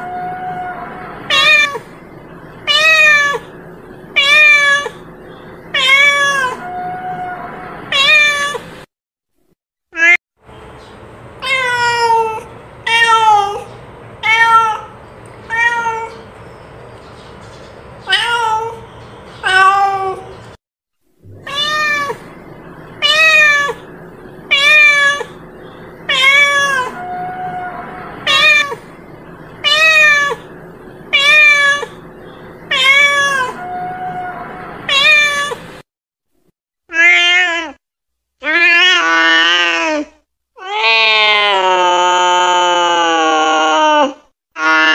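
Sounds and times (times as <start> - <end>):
cat meowing: 0.0 - 1.9, 2.7 - 3.5, 4.2 - 5.0, 5.7 - 8.6, 11.4 - 16.2, 18.1 - 18.8, 19.4 - 20.3, 21.3 - 22.3, 23.0 - 23.9, 24.5 - 25.4, 26.1 - 28.8, 29.6 - 30.5, 31.1 - 32.0, 32.7 - 35.7, 36.9 - 37.8.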